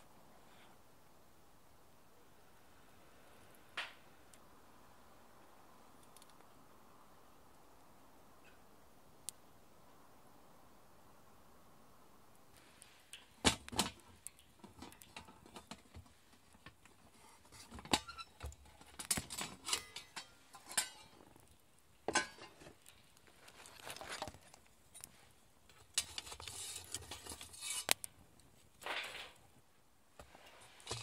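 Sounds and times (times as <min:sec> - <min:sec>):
charcoal clinking against metal pot: 0:17.4 - 0:21.5, 0:22.1 - 0:22.9, 0:25.7 - 0:28.0.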